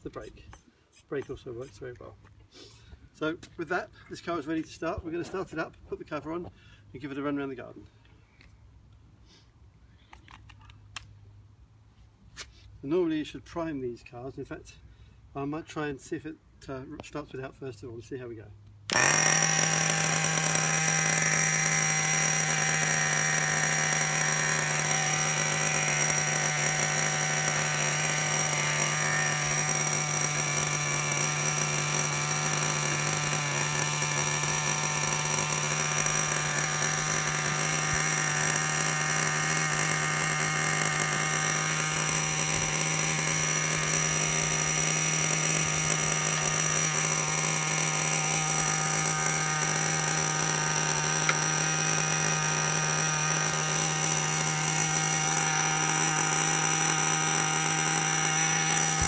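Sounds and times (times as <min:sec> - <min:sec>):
small nitro engine idling: 0:18.9 - 0:59.0.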